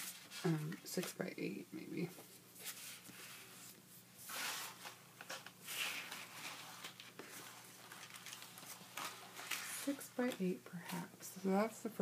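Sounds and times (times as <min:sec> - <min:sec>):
paper rustling and tapping: 0:05.2 - 0:10.5.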